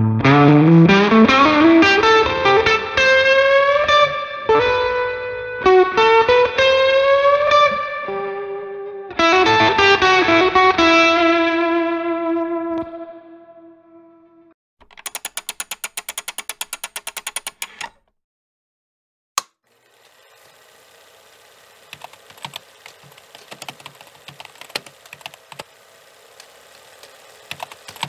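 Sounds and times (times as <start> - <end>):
electric guitar lead line: 0.0 - 14.2.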